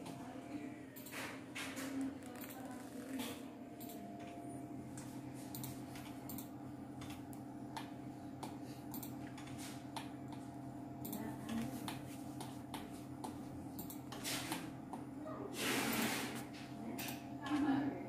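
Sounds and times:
steady low hum: 0.0 - 18.0
keyboard and mouse clicks: 5.5 - 10.4.

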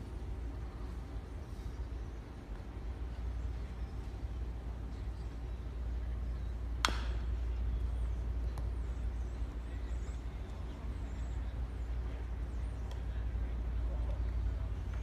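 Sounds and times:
metal bat hitting ball: 6.8 - 7.2.

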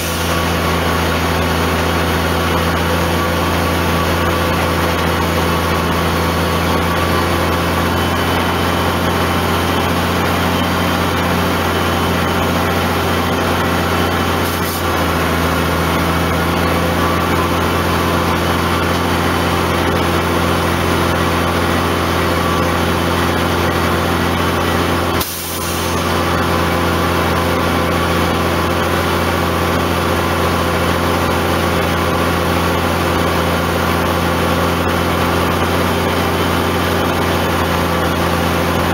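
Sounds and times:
diesel truck engine running: 0.0 - 38.9.

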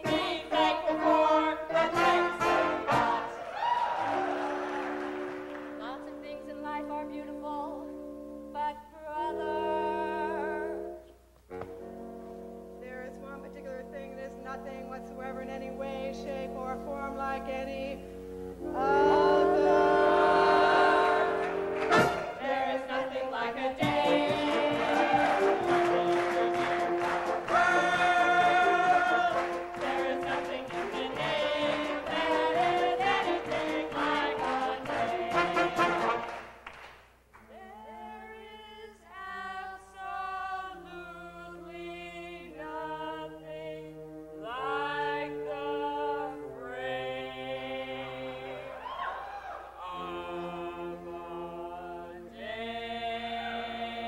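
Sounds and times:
group of voices singing: 0.0 - 5.2, 18.6 - 36.4, 37.4 - 49.0, 49.7 - 54.0.

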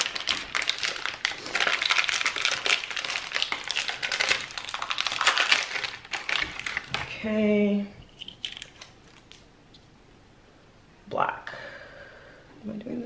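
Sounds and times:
packaging being torn and crinkled: 0.0 - 7.1, 8.2 - 9.5.

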